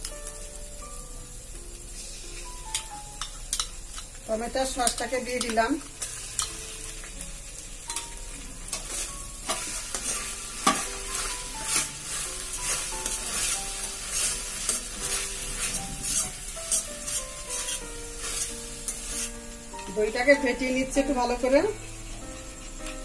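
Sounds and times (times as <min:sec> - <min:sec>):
light sizzle: 0:00.0 - 0:23.0
metal spatula scraping a pan: 0:08.7 - 0:19.5.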